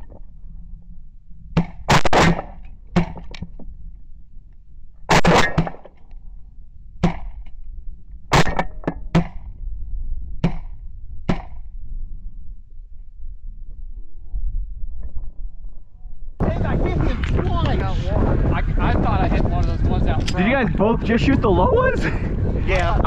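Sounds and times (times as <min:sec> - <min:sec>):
loud shotgun blasts: 0:01.6 - 0:03.3, 0:05.1 - 0:05.9, 0:08.3 - 0:09.4.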